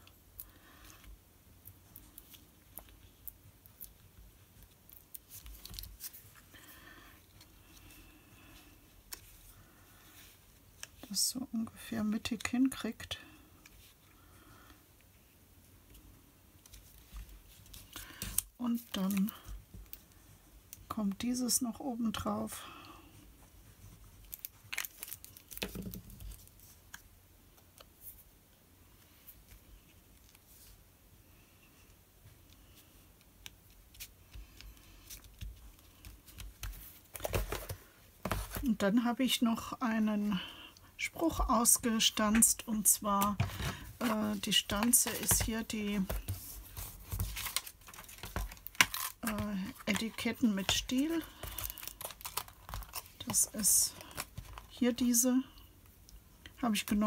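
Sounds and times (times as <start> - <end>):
paper rustling: 43.2 - 54.8.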